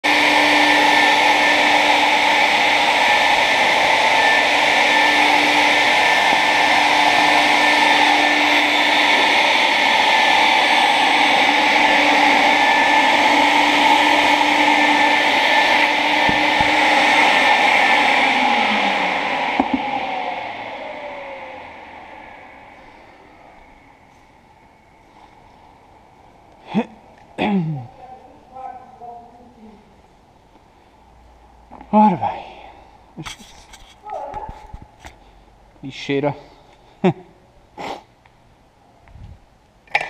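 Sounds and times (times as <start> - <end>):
shop vacuum running: 0.0 - 27.6.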